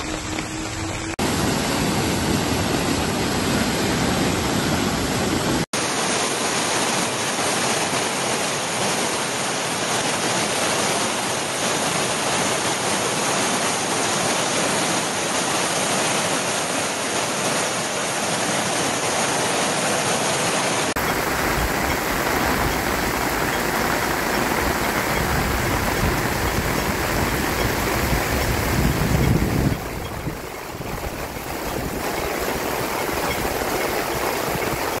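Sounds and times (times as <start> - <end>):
floodwater rushing: 0.0 - 35.0
torrential rain: 0.0 - 35.0.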